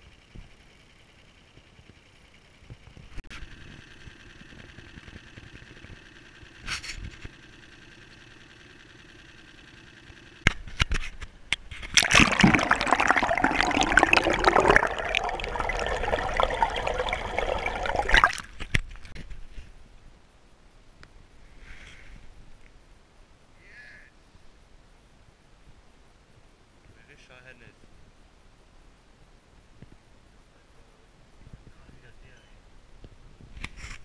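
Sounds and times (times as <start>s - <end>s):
water gurgling and splashing: 11.8s - 18.7s.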